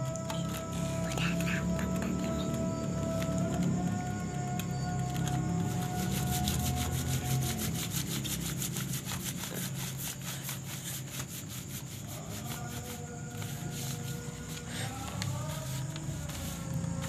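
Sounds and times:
iron scraping over paper: 0:04.8 - 0:17.0.

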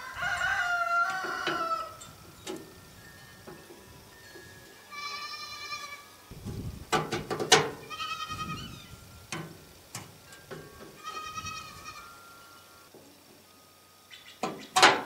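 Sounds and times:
high wavering animal call: 0:00.0 - 0:02.9, 0:03.9 - 0:06.3, 0:07.8 - 0:09.3, 0:11.0 - 0:12.9, 0:13.8 - 0:14.8.

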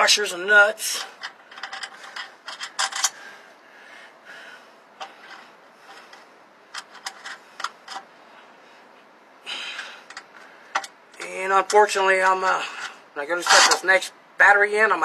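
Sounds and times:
washers and nuts scraping: 0:00.8 - 0:03.4, 0:05.0 - 0:08.1, 0:09.7 - 0:14.1
small metal clicks: 0:09.7 - 0:13.8.

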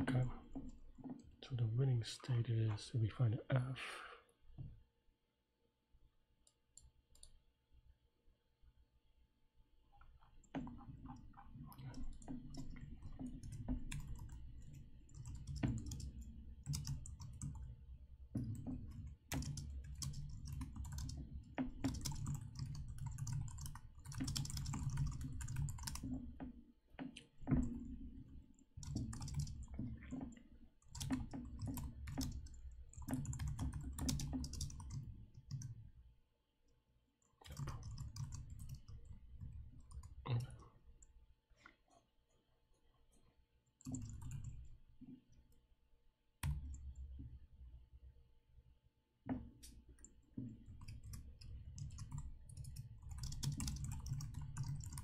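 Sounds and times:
typing on computer keyboard: 0:10.5 - 0:17.8, 0:18.4 - 0:26.4, 0:28.8 - 0:35.8, 0:37.4 - 0:40.6, 0:43.8 - 0:44.7, 0:50.0 - 0:55.0.

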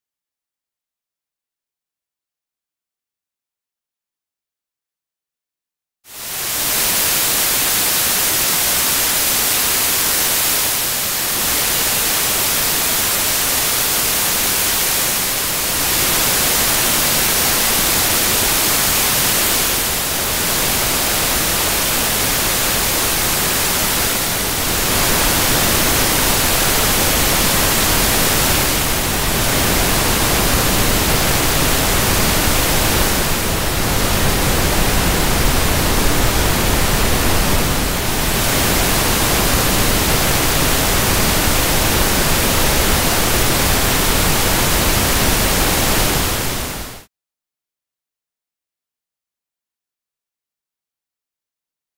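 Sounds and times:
synthesised white and pink noise: 0:06.1 - 0:47.1.

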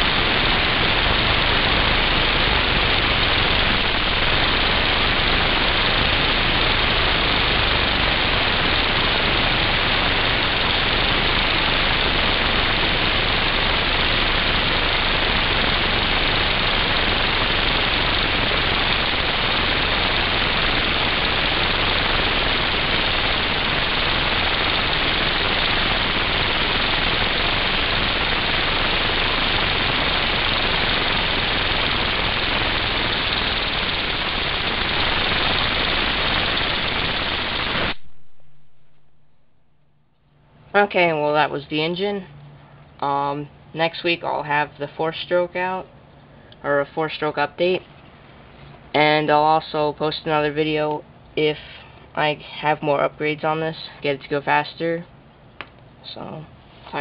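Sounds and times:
pneumatic engine running: 0:00.0 - 0:38.1.

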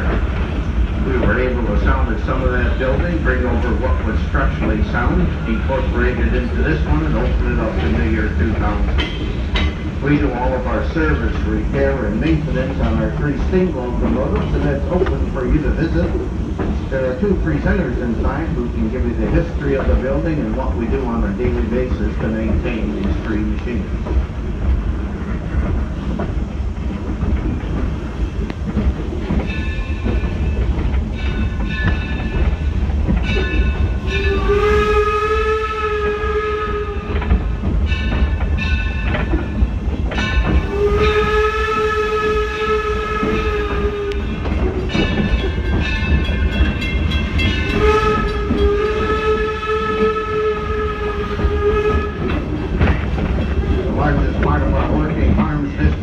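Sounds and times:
train rumble and rail clatter: 0:00.0 - 0:56.0
steam whistle blasts: 0:34.2 - 0:37.2, 0:40.7 - 0:44.3, 0:47.7 - 0:52.3.

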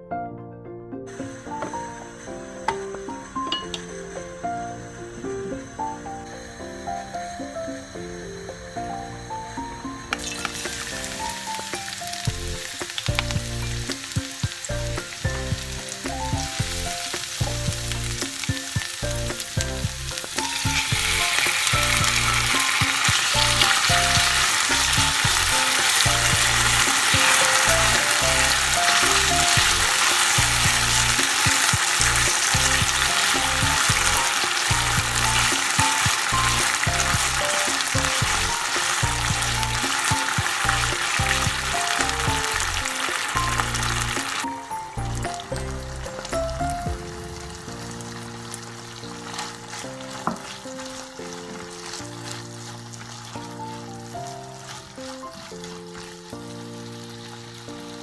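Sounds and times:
meat frying sizzle: 0:01.1 - 0:58.0
oil sizzling in a pan: 0:01.1 - 0:58.0
spatula stirring in a pan: 0:10.2 - 0:44.5, 0:48.6 - 0:58.0
background music with bass pulse: 0:12.2 - 0:22.5, 0:23.2 - 0:35.5, 0:36.3 - 0:39.8, 0:40.6 - 0:44.2.

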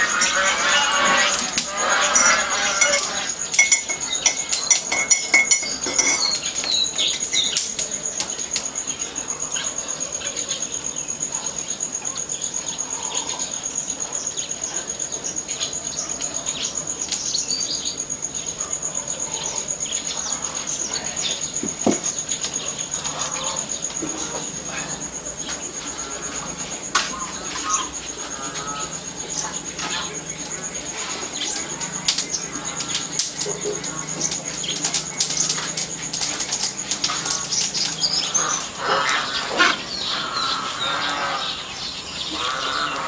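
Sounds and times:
insects trilling: 0:00.0 - 0:43.0
knock: 0:21.6 - 0:22.0.

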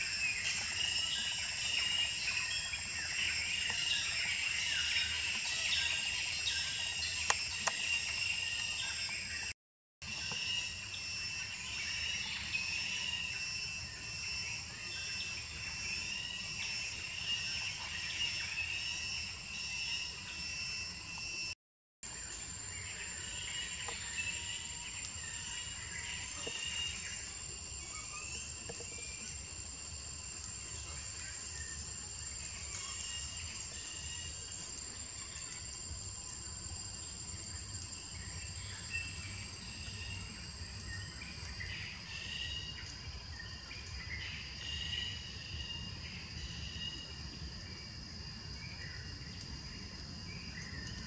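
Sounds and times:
insects droning: 0:00.0 - 0:51.0
faint chirps: 0:22.2 - 0:47.2.

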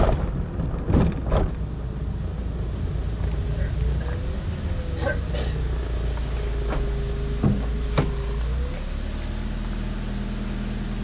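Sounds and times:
car engine idling: 0:00.4 - 0:11.0
sharp knocks: 0:07.4 - 0:08.2.

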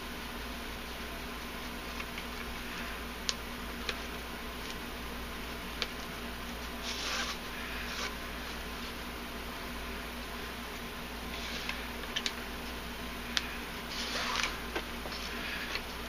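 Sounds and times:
faint steady hum: 0:00.0 - 0:16.0
cord rustling: 0:06.6 - 0:08.6, 0:13.4 - 0:16.0
cord sliding swish: 0:06.8 - 0:08.2, 0:13.9 - 0:14.6.

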